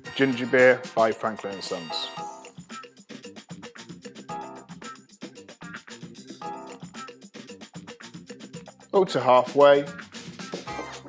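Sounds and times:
background music with quick beat: 0.0 - 11.0.

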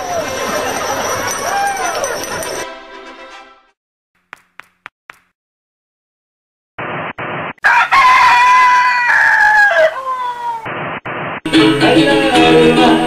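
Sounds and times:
rooster crowing: 7.6 - 10.6.

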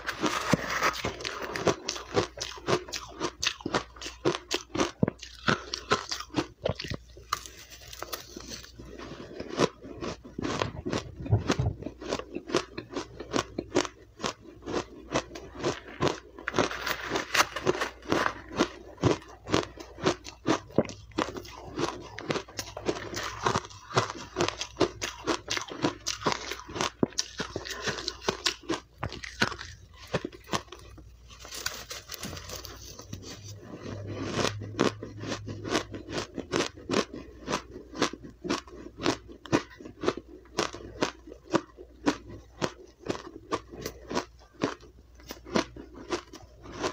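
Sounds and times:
mouth crunching ice: 0.0 - 46.9.

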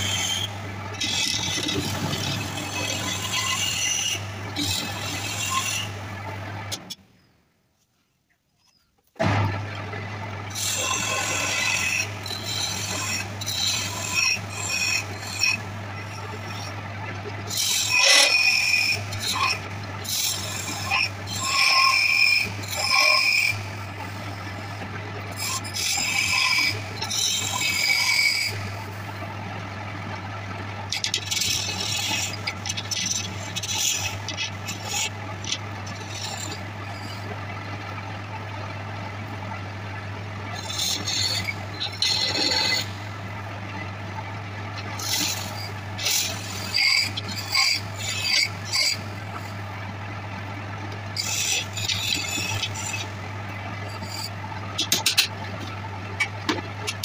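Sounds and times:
wood lathe humming: 0.0 - 6.8, 9.2 - 57.0
turning tool scraping wood: 0.0 - 7.0, 10.5 - 16.8, 17.4 - 29.2, 30.8 - 37.4, 40.6 - 43.1, 44.8 - 49.7, 50.9 - 53.2, 53.8 - 57.0.

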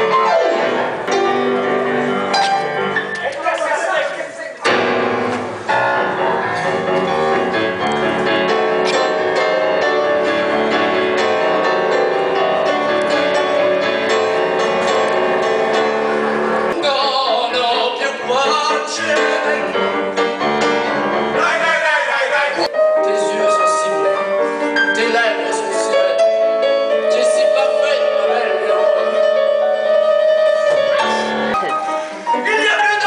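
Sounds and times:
upright piano playing: 0.0 - 33.0
man singing into microphone: 16.8 - 19.9.

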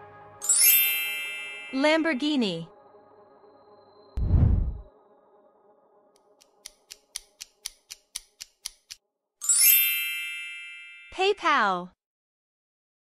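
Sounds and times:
bright chime: 0.4 - 2.6, 9.4 - 11.1
low whoosh: 4.2 - 5.0.

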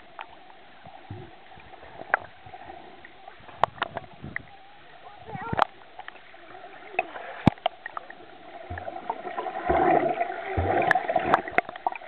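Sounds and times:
churning water and bubbles: 0.0 - 12.0
underwater clicks: 3.5 - 4.5, 7.0 - 8.0, 8.7 - 12.0
dull underwater thumps: 8.6 - 11.9.

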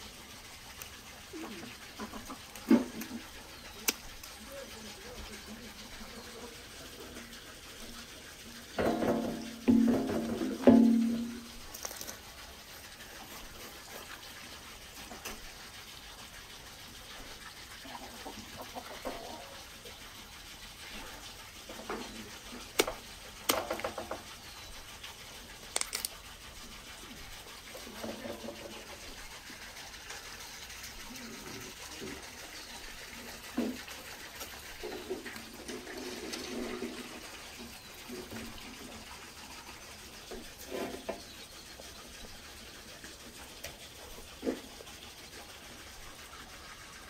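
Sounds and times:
steady rushing hiss: 0.0 - 47.0
knife cutting crisp roast: 22.7 - 23.9
bones cracking and snapping: 22.8 - 23.8, 25.8 - 26.2.

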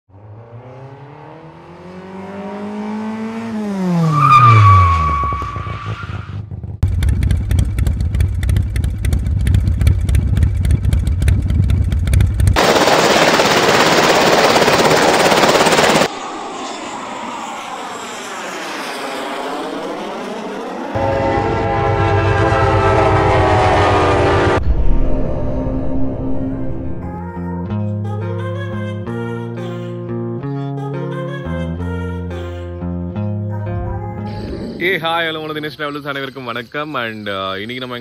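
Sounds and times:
deep bass beat: 6.8 - 12.6
motor-like pitch sweep: 12.6 - 27.1, 33.8 - 35.4.

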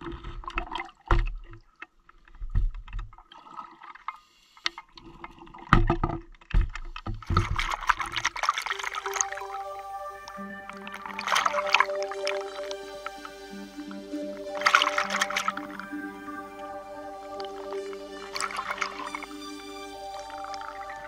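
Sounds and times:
underwater bubbles gurgling: 7.3 - 21.0.

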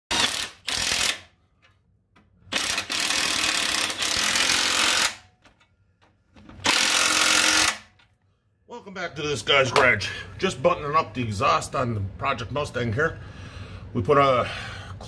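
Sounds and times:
impact wrench hammering: 0.1 - 5.7, 6.4 - 8.0.

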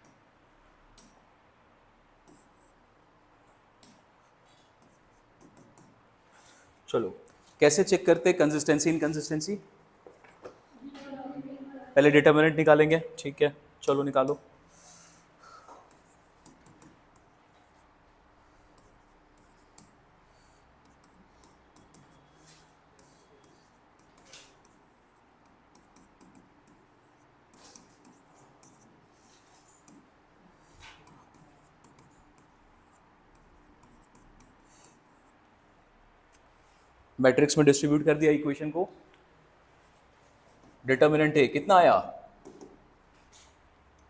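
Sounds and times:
pen scratching handwriting: 4.8 - 6.0, 15.8 - 17.9, 18.7 - 20.0, 20.8 - 30.1, 30.8 - 35.4.

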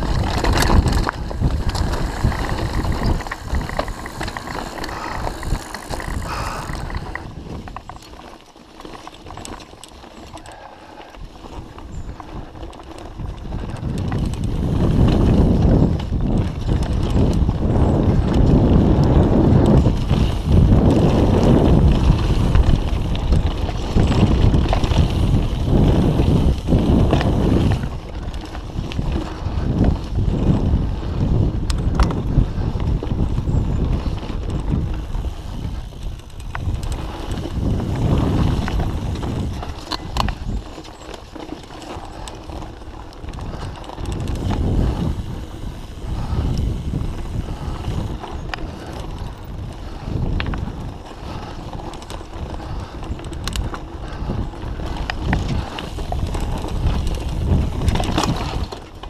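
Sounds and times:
tyres rumbling on dirt: 0.0 - 8.0, 33.7 - 59.0
wind on microphone: 0.0 - 8.0, 11.2 - 59.0
bike rattling: 0.0 - 59.0.

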